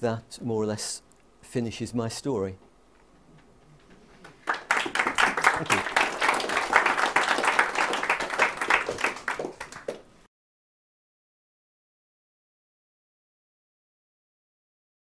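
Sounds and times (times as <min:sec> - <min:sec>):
audience applauding: 0:04.2 - 0:10.1.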